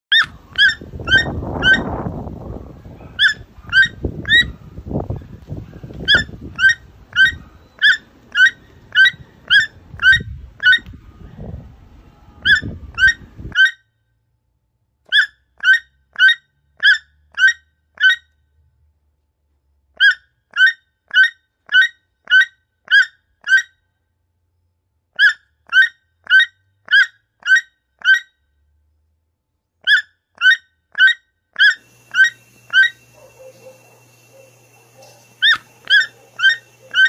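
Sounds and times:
toucan calling: 0.1s - 11.0s, 12.4s - 13.8s, 15.1s - 18.4s, 20.0s - 23.7s, 25.2s - 28.3s, 29.8s - 37.0s.

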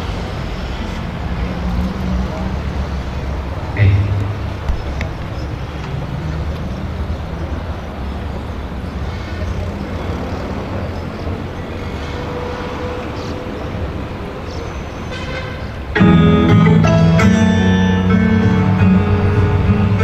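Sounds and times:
plucked guitar notes: 3.8s - 5.3s, 16.0s - 20.0s
outdoor low hum: 3.8s - 5.7s.

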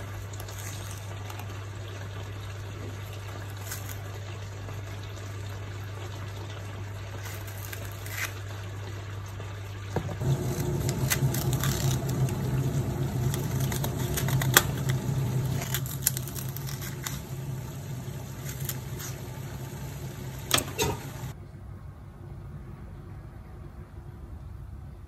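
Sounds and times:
bean pods snapping: 7.2s - 8.4s, 10.2s - 19.6s
steady low hum: 10.0s - 21.4s.

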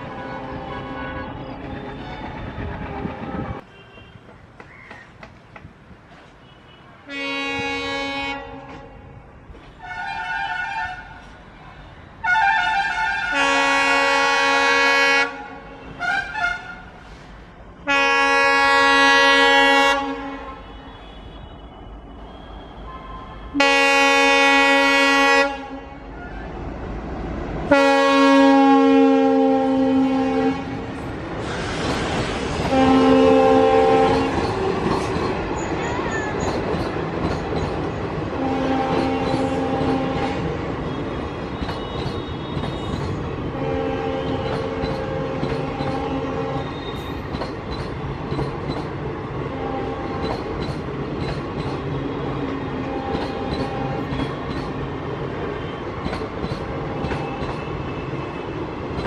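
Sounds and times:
locomotive horn blasts: 0.0s - 2.0s, 6.4s - 9.1s, 9.8s - 11.2s, 12.2s - 17.0s, 17.8s - 26.1s, 27.7s - 30.9s, 32.7s - 34.4s, 38.4s - 41.0s, 41.8s - 47.0s, 49.5s - 50.2s, 52.2s - 54.2s
train coaches rolling and clattering: 0.0s - 25.0s, 29.2s - 59.0s.

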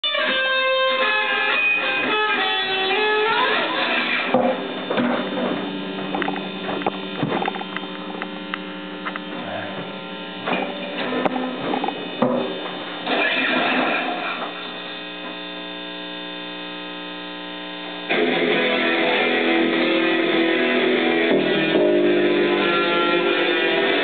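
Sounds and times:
electric guitar bending notes: 0.0s - 16.4s, 17.6s - 24.0s
amplifier mains hum: 0.0s - 24.0s
sharp clicks and pops: 6.1s - 9.4s.

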